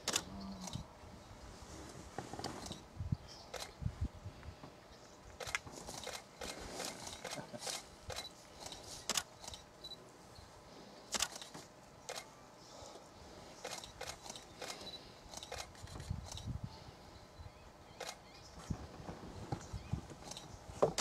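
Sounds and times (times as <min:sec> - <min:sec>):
camera shutters clicking: 0:00.0 - 0:00.8, 0:05.4 - 0:09.6, 0:11.1 - 0:12.3, 0:13.6 - 0:16.5, 0:18.0 - 0:18.2.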